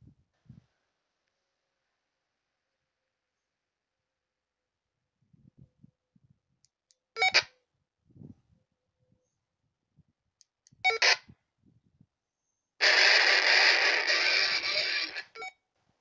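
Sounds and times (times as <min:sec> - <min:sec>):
short radio beeps: 0:07.2 - 0:07.5, 0:10.8 - 0:11.3, 0:12.8 - 0:15.6
loud steady rushing from radio: 0:12.8 - 0:15.4.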